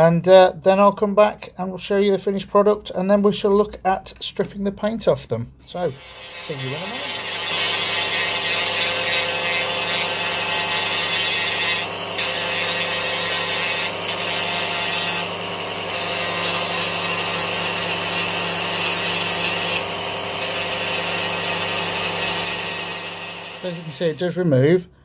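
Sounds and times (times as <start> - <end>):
rotary tool grinding plastic: 5.8 - 24.1.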